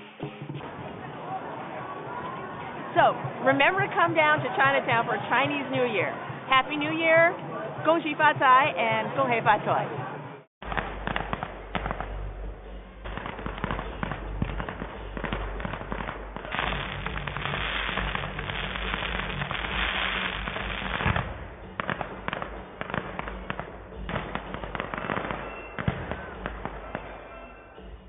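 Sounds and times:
fireworks popping and crackling: 0:10.6 - 0:12.3, 0:13.0 - 0:27.4.

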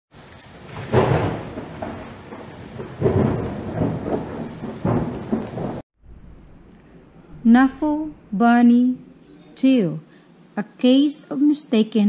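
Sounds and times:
steady rain: 0:00.1 - 0:05.8
thunder rolling: 0:00.2 - 0:09.2.

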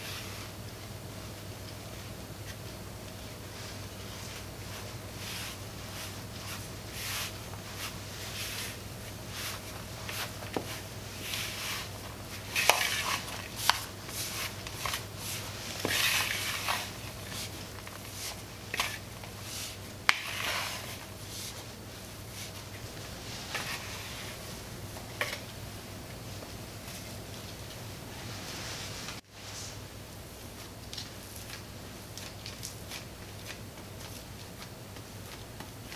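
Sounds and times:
low steady hum: 0:00.0 - 0:35.9
spatula scraping glass bowl: 0:11.2 - 0:19.0, 0:20.1 - 0:21.0.

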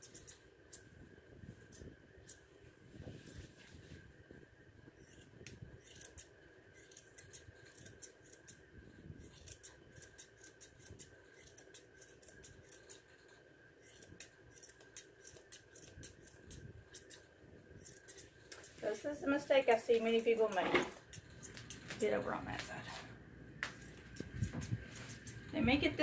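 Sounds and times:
shears snipping hair: 0:05.0 - 0:08.6, 0:09.2 - 0:13.1, 0:13.8 - 0:17.2, 0:17.8 - 0:26.0.

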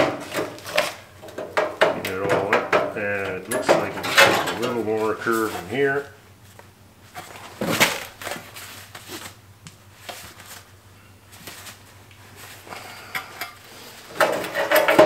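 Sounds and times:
metal scraping and rattling: 0:00.0 - 0:06.0, 0:13.1 - 0:15.0.

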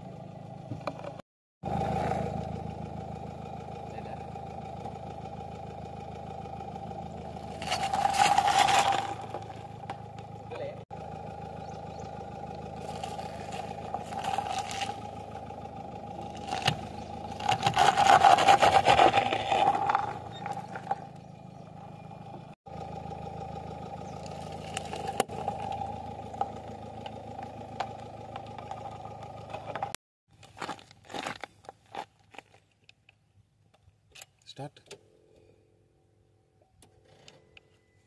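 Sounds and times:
car engine running slowly: 0:00.0 - 0:32.8
tyre crushing objects on gravel: 0:07.4 - 0:10.0, 0:12.8 - 0:15.3, 0:16.2 - 0:21.1.

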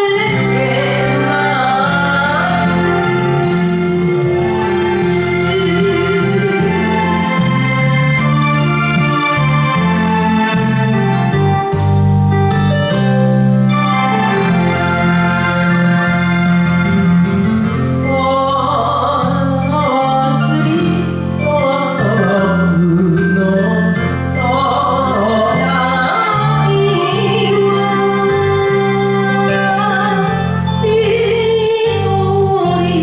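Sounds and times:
woman singing with vibrato: 0:00.0 - 0:07.4, 0:18.0 - 0:33.0
karaoke backing track: 0:00.0 - 0:33.0.

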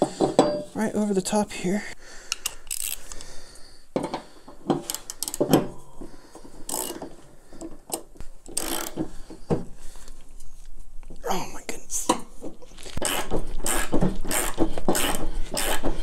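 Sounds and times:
socket ratchet clicking: 0:06.7 - 0:07.0, 0:08.5 - 0:09.0.

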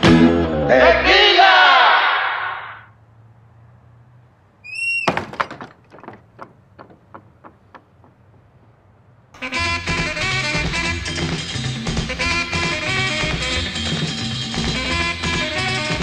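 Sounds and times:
music: 0:00.0 - 0:00.7, 0:09.4 - 0:16.0
door shutting with thunk: 0:04.8 - 0:07.6
tapping sounds: 0:05.1 - 0:08.3.

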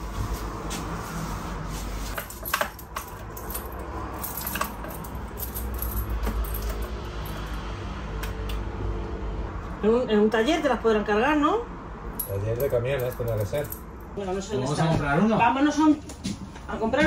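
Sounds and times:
keys jangling: 0:02.2 - 0:07.6, 0:12.2 - 0:14.0.

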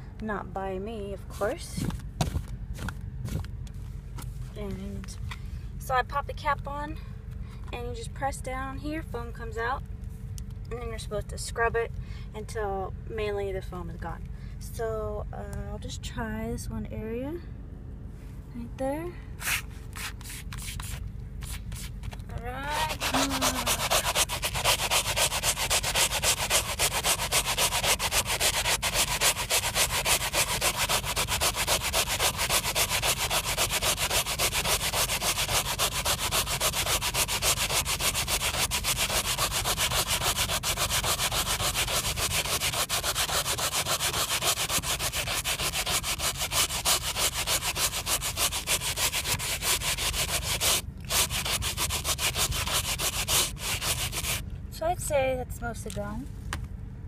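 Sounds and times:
stiff brush scrubbing upholstery: 0:19.4 - 0:54.4.

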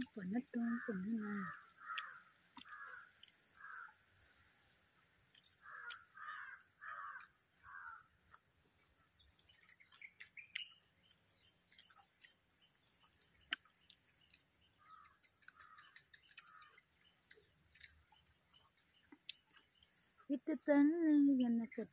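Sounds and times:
insect trilling: 0:00.0 - 0:04.4, 0:05.4 - 0:08.2, 0:09.4 - 0:21.9
crow cawing: 0:00.6 - 0:04.0, 0:05.6 - 0:08.1, 0:14.8 - 0:16.8
high insect buzz: 0:00.6 - 0:04.8, 0:05.4 - 0:17.1.

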